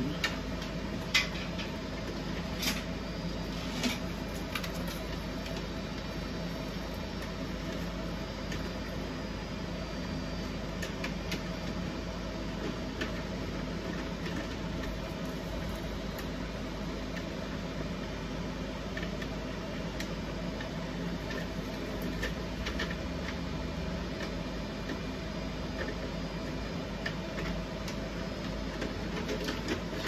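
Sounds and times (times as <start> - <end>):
printers and fans humming: 0.0 - 30.0.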